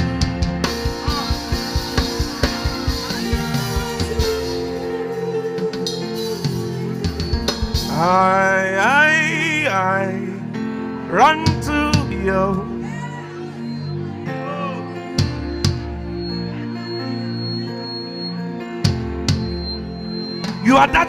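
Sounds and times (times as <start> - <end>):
drum kit hits: 0.0 - 4.8, 5.7 - 8.3, 18.9 - 19.8
sustained keyboard chords: 0.0 - 21.0
man singing into a microphone: 7.8 - 12.8.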